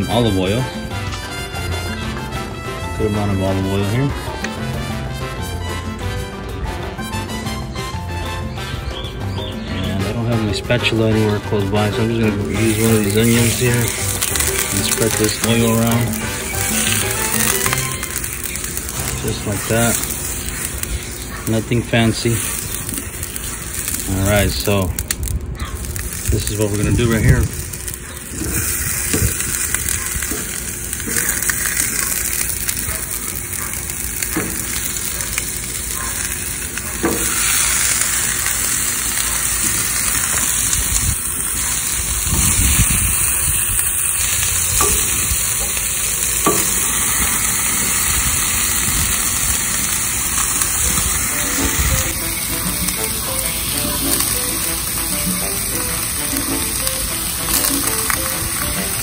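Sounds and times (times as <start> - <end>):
vegetables sizzling on griddle: 12.4 - 59.0
light knocks on griddle: 46.4 - 46.8.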